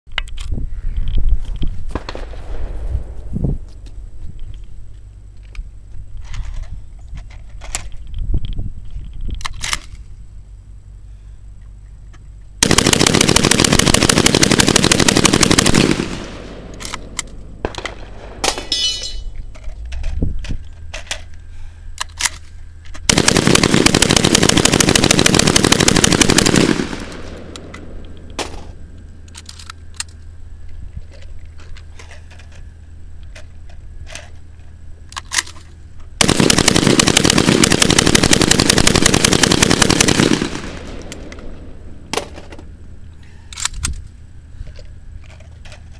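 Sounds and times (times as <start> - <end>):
shotgun rapid bursts: 12.6 - 16.9, 23.1 - 27.7, 36.2 - 41.4.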